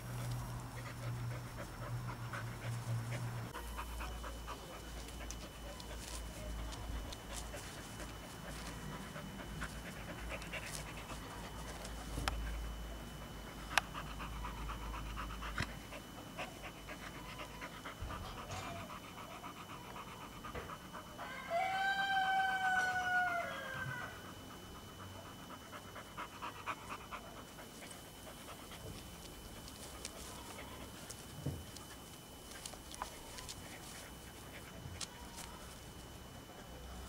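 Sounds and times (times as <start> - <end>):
dog panting: 0.0 - 21.2, 24.2 - 36.8
dog whining: 16.4 - 24.4.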